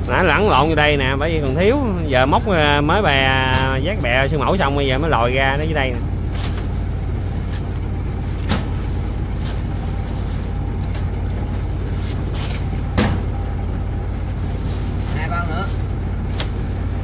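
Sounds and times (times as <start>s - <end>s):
boat engine droning: 0.0s - 17.0s
sharp knocks: 12.9s - 13.3s.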